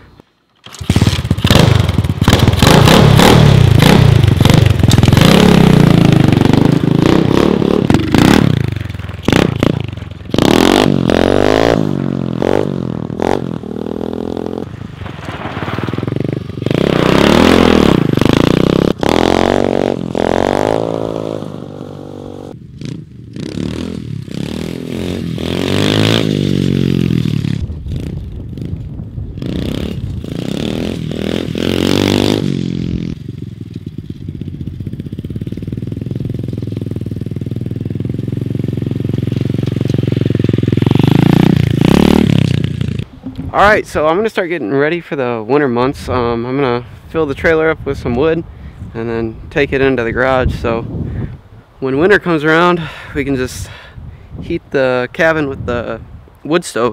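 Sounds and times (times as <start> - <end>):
motorbike engine revving: 0.6 - 43.6.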